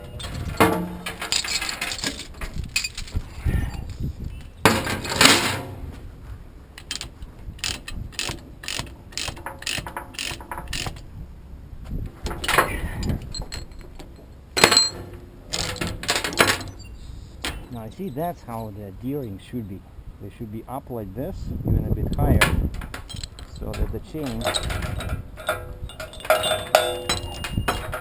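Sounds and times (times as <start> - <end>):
steel chain clanking: 0.0 - 5.8, 6.8 - 11.0, 12.2 - 19.4, 22.9 - 28.0
ratchet pawl clicking: 6.8 - 11.0.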